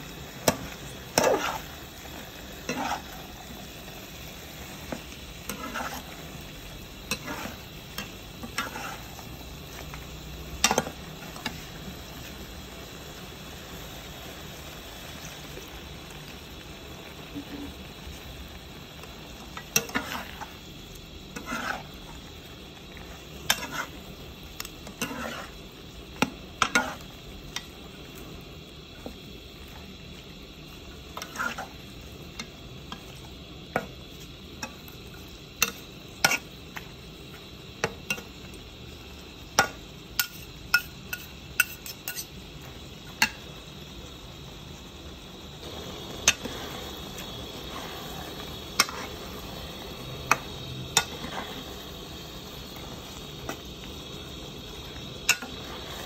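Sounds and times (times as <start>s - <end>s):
low sizzle: 0.0s - 56.0s
metal spoons scraping a wok: 0.4s - 1.8s, 2.6s - 3.4s, 5.4s - 9.3s, 19.6s - 20.5s, 21.3s - 22.0s, 23.4s - 24.0s, 24.8s - 25.6s, 26.6s - 27.1s, 31.2s - 31.8s, 40.2s - 42.4s, 48.8s - 49.3s.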